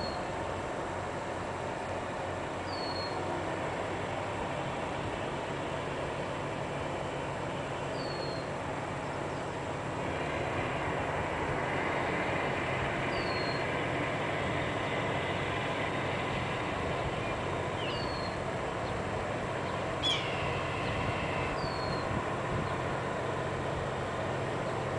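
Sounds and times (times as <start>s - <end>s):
low engine rumble: 0.0s - 24.9s
bird chirping: 7.8s - 8.5s, 19.7s - 20.6s, 21.5s - 22.0s.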